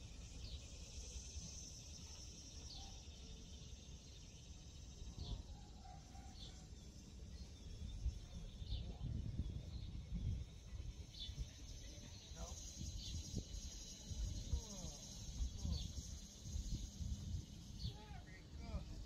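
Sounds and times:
high insect drone: 0.0s - 19.0s.

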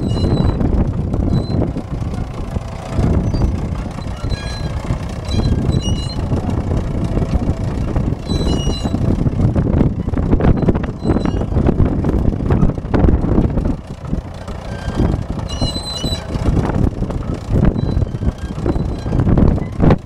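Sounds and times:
running gear squealing: 0.0s - 2.2s, 2.9s - 6.6s, 8.2s - 9.1s, 10.0s - 11.7s, 14.6s - 16.5s, 17.2s - 19.9s
tractor engine under load: 0.0s - 20.0s.

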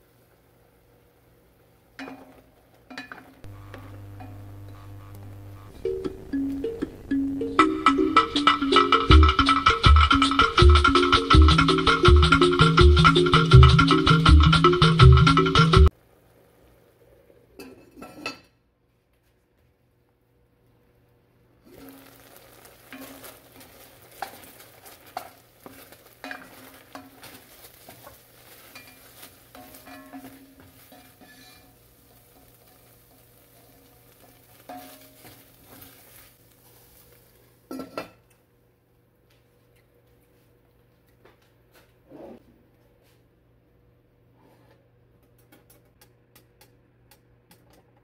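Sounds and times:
food sizzling in a pot: 3.4s - 9.0s, 21.6s - 38.0s.

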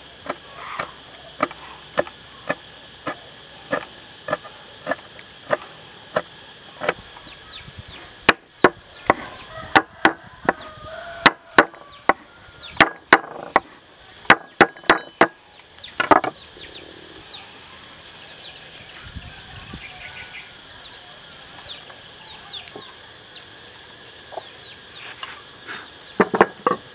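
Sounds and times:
cleaver chopping on wooden board: 11.2s - 12.2s, 12.8s - 13.7s, 14.3s - 15.4s.

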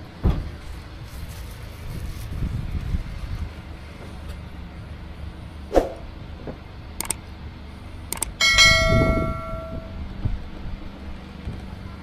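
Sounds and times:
sharp clicks: 7.0s - 7.2s, 8.1s - 8.4s.

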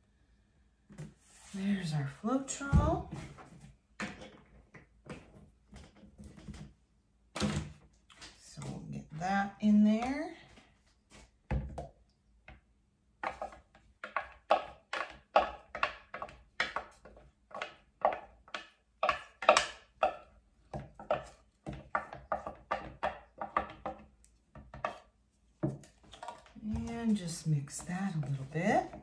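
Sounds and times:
stir stick scraping plastic cup: 13.2s - 20.3s, 21.0s - 25.2s, 25.8s - 29.0s.

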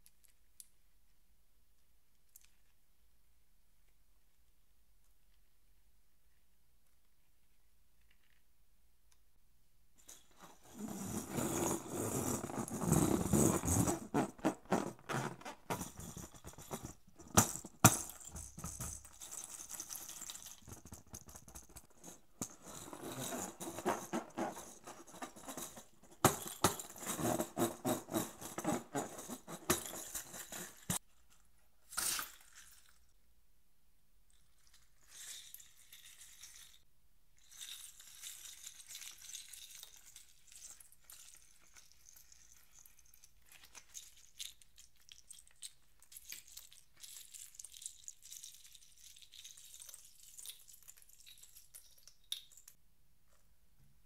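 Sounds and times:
beads rattling inside balloon: 10.0s - 31.0s
rubber balloon rustling: 10.2s - 18.8s, 22.8s - 31.0s.

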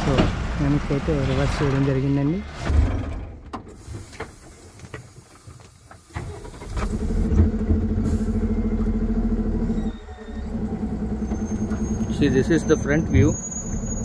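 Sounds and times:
diesel truck engine revving: 0.0s - 3.9s, 6.2s - 14.0s
engine clicks: 3.0s - 8.0s.

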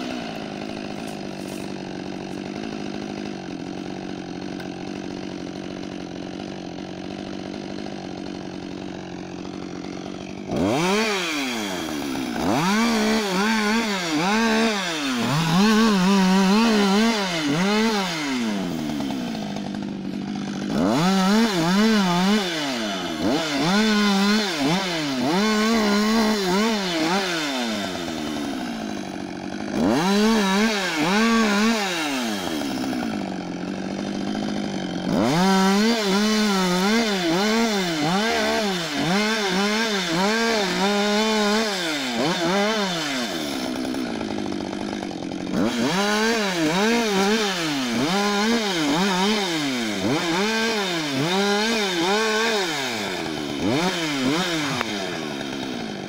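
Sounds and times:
chainsaw cutting branches: 0.0s - 56.0s.

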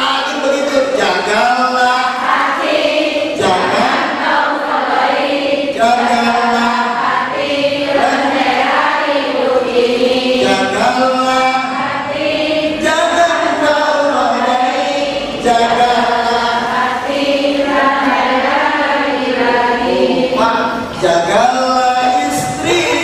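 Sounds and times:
man chanting through a microphone: 0.0s - 2.6s, 3.3s - 4.3s, 5.7s - 8.7s, 10.0s - 12.1s, 12.7s - 17.1s, 19.7s - 23.0s.

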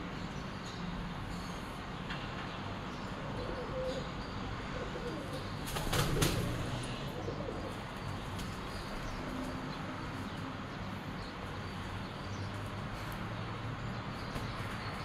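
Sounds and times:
pigeons flapping wings: 5.6s - 6.7s.

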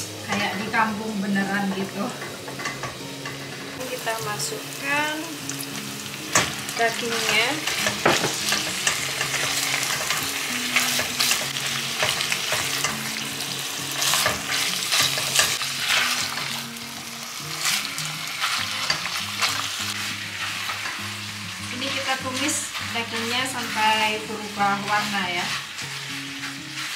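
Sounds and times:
beef sizzling in hot oil: 0.0s - 26.9s
spatula scraping pot: 21.7s - 26.9s.

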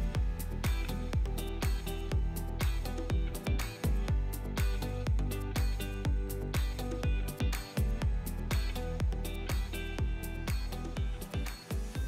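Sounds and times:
music with steady beat: 0.0s - 12.0s.

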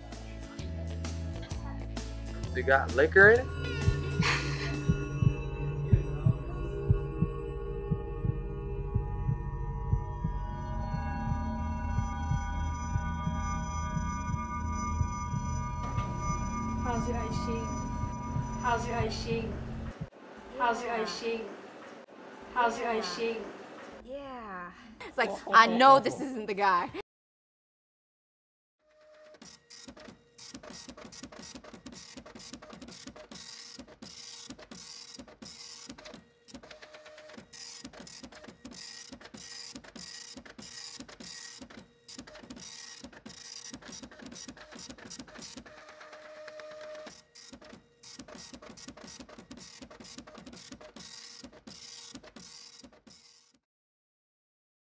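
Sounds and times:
steady hum: 3.4s - 20.9s.

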